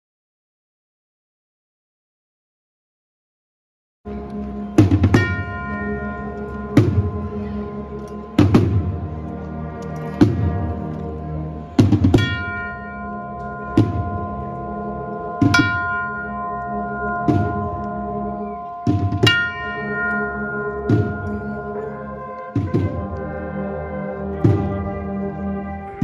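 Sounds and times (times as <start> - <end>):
held brass notes: 4.1 - 26.0
heavy drum strokes: 4.8 - 7.6, 8.3 - 9.2, 10.2 - 10.8, 11.7 - 23.5, 24.3 - 26.0.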